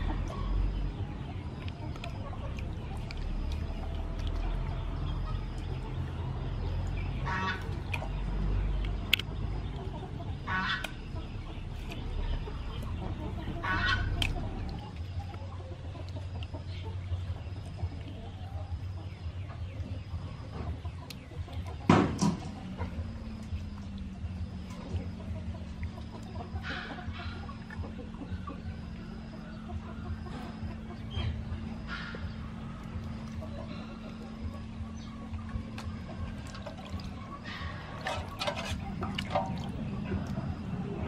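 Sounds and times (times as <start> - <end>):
chickens clucking: 0.0 - 41.0.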